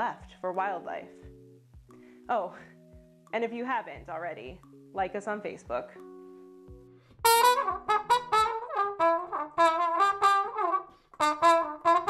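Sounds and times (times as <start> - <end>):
jazz music with brass horn: 7.2 - 12.0.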